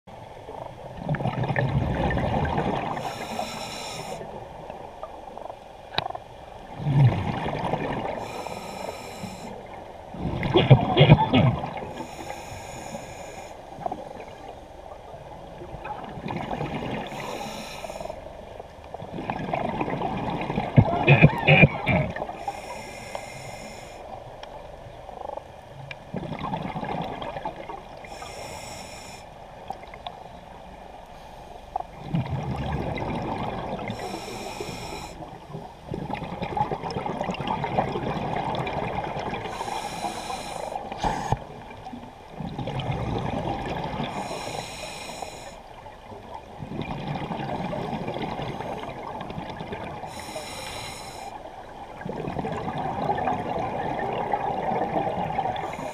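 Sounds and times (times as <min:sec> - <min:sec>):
hissing regulator inhale: 0:02.9 - 0:04.4, 0:08.1 - 0:09.7, 0:11.9 - 0:13.8, 0:17.0 - 0:18.3, 0:22.4 - 0:24.2, 0:28.0 - 0:29.4, 0:33.9 - 0:35.3, 0:39.4 - 0:41.6, 0:44.1 - 0:45.7, 0:50.1 - 0:51.5, 0:55.6 - 0:55.9.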